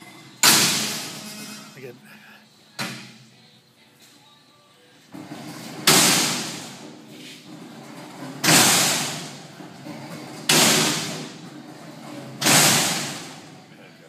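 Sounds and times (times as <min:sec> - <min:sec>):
steel door slamming shut: 0:00.4 - 0:01.7, 0:05.3 - 0:06.8, 0:08.2 - 0:13.5.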